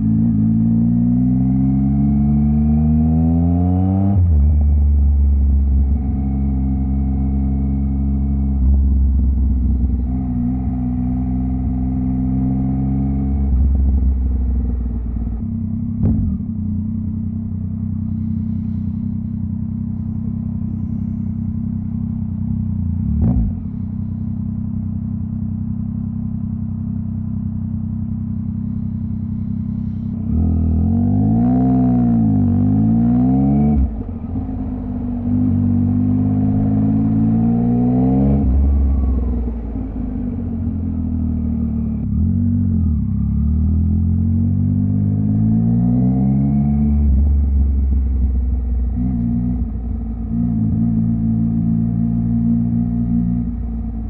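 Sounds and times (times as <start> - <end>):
motorcycle engine revving: 15.5 - 54.0.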